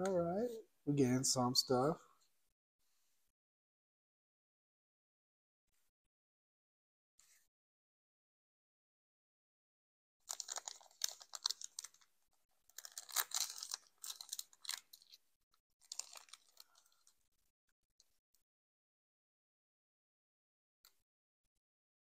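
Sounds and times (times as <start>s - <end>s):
foil wrapper crinkling: 10.3s - 12.1s, 12.7s - 15.2s, 15.8s - 17.2s.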